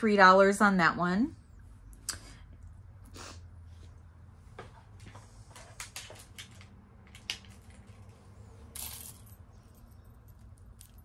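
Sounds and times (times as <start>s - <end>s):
jewelry clicking and clinking: 5.8s - 11.0s.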